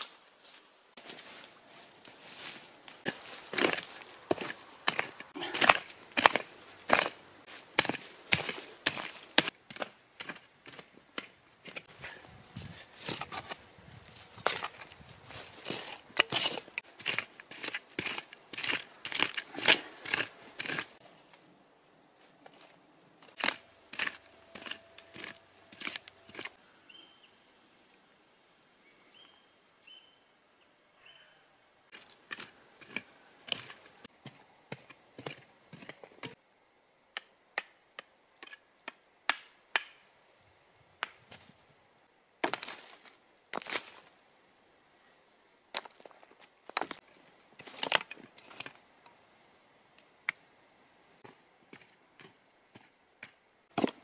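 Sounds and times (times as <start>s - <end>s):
mattock chopping stony soil: 3.0s - 13.6s, 14.4s - 21.0s, 23.3s - 26.6s, 31.9s - 36.4s, 42.4s - 44.1s, 51.2s - 54.0s.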